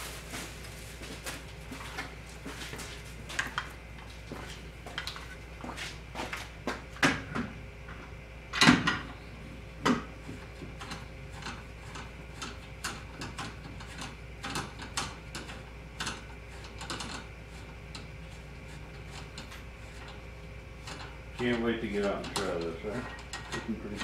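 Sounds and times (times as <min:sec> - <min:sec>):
faint steady hum: 0:00.0 - 0:24.0
clicks and clatter of motor handling: 0:09.8 - 0:17.3, 0:20.8 - 0:24.0.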